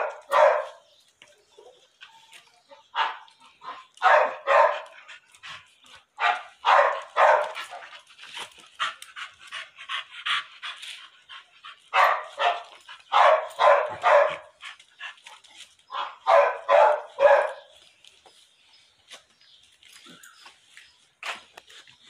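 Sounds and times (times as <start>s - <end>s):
dog barking: 0.0s - 0.9s, 2.9s - 5.0s, 6.2s - 7.8s, 11.9s - 14.6s, 15.9s - 17.8s
dog yelping: 16.0s - 17.6s.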